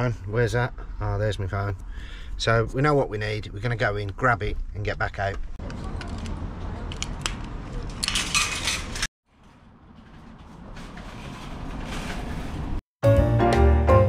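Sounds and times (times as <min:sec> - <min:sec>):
shopping trolley clattering: 0:07.8 - 0:12.8
trolley rolling rattle: 0:08.0 - 0:12.8.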